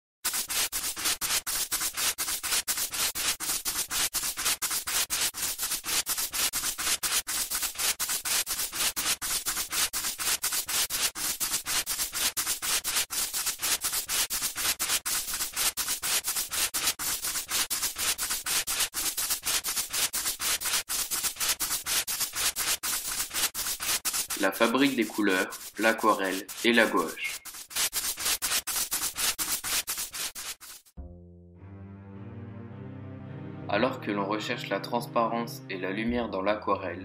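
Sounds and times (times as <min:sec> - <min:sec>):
dense crackling and rustling: 0:18.7 - 0:31.0.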